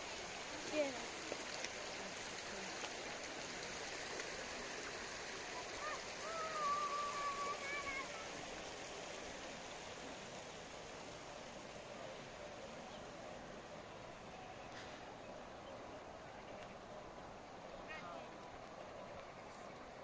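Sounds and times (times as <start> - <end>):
water rushing over weir: 0.0 - 20.0
drawn-out high call: 5.6 - 8.3.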